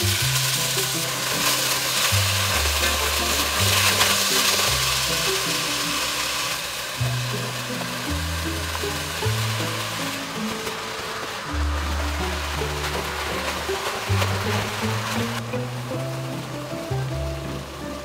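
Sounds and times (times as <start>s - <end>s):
beef sizzling in oil: 0.0s - 18.0s
background music with bass: 6.9s - 10.8s, 11.4s - 18.0s.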